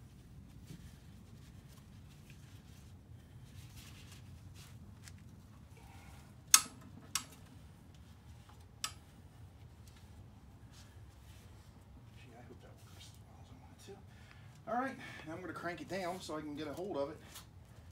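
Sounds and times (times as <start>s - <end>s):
sharp buckle clicks: 6.5s - 7.4s.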